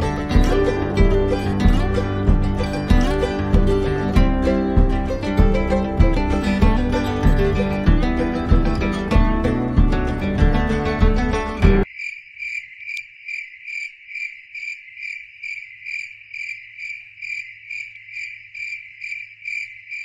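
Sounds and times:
acoustic guitar music: 0.0s - 11.8s
cricket chirping: 11.8s - 20.0s.

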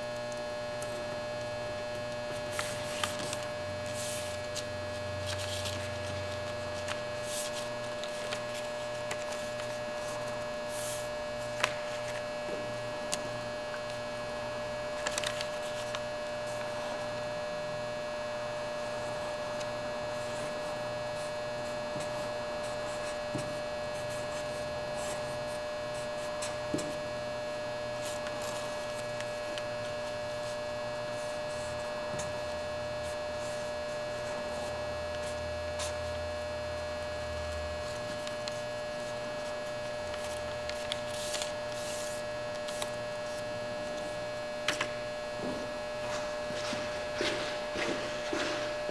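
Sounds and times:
electrical hum with high whine: 0.0s - 48.9s
paper folding: 2.3s - 12.3s, 14.9s - 16.8s, 37.8s - 44.9s.

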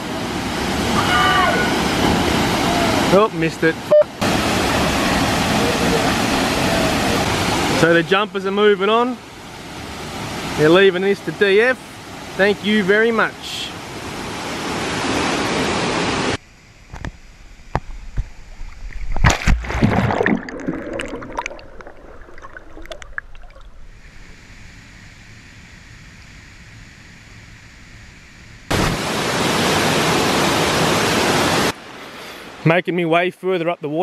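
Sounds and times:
waterfall rushing roar: 0.0s - 16.4s, 28.7s - 32.6s.

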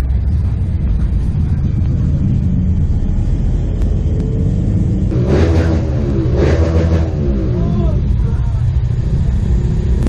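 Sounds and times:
low rumble: 0.0s - 10.0s.

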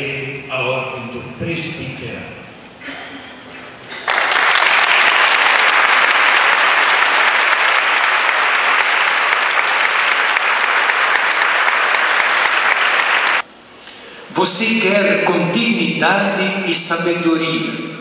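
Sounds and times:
congregation applauding: 3.9s - 13.4s.

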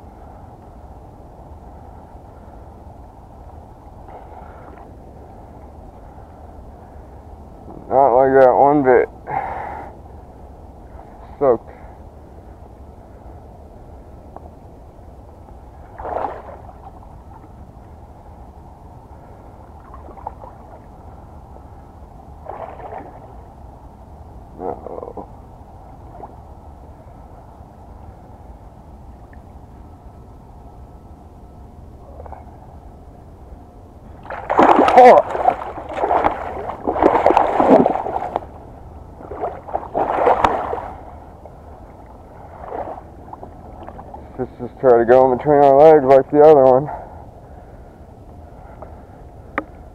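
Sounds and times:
water splashing: 15.9s - 17.0s, 22.4s - 23.3s, 34.1s - 44.4s.

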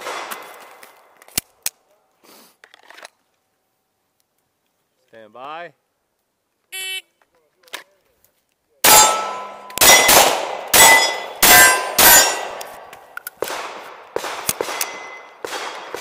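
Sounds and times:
pistol shots: 0.0s - 0.6s, 8.8s - 12.8s, 13.4s - 16.0s
steel plates ringing: 8.8s - 10.1s, 10.8s - 12.5s.

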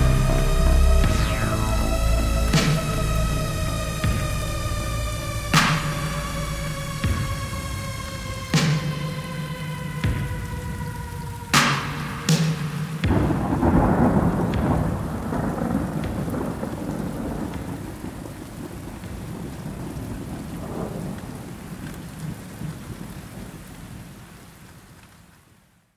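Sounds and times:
thunder crack: 0.0s - 21.6s
steady rain: 0.0s - 25.9s
rolling thunder: 13.0s - 23.1s.

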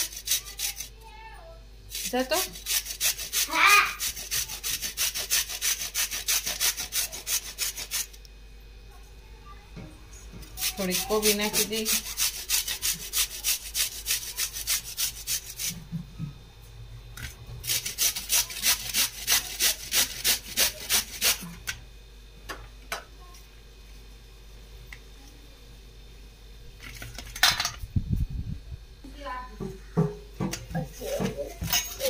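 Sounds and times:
cabbage rasping on a hand grater: 0.0s - 0.9s, 1.9s - 8.2s, 10.5s - 15.8s, 17.6s - 21.5s.

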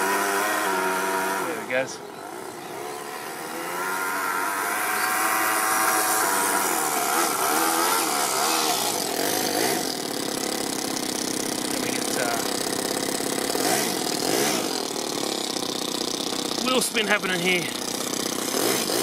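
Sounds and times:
small model engine revving: 0.0s - 19.0s.

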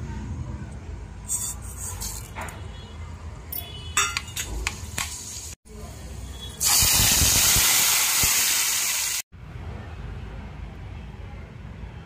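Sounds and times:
hot oil sizzling in a pan: 6.6s - 9.3s.

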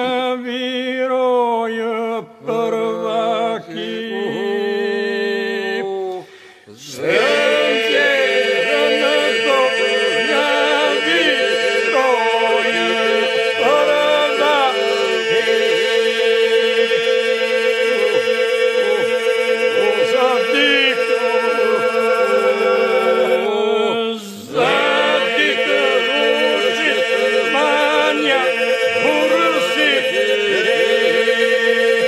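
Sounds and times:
solo voices singing melody: 2.2s - 32.0s
voices holding a drone: 24.6s - 30.7s.

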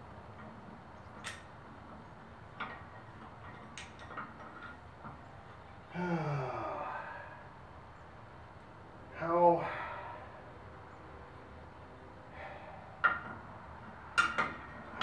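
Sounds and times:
man groaning with effort: 5.9s - 7.4s, 9.2s - 10.1s.

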